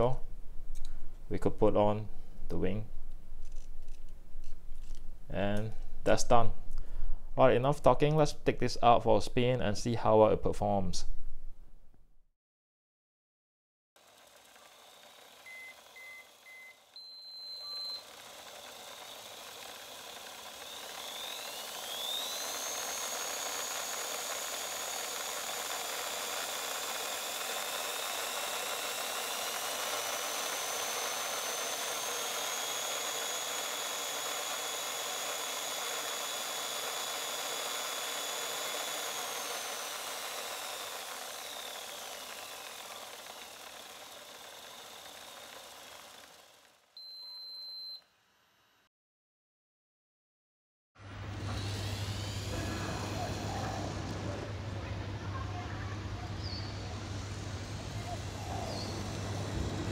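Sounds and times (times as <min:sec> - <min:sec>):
toy car motor whine: 0:14.0 - 0:48.9, 0:51.4 - 0:54.3, 0:57.6 - 0:59.9
short electronic beep: 0:15.5 - 0:18.0, 0:47.0 - 0:48.0.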